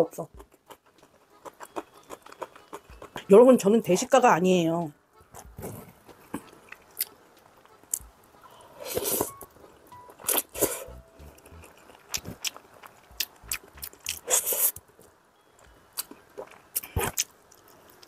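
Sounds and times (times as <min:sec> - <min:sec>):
person chewing and slurping noodles: 0:00.4 - 0:03.3, 0:08.6 - 0:14.8, 0:16.0 - 0:18.0.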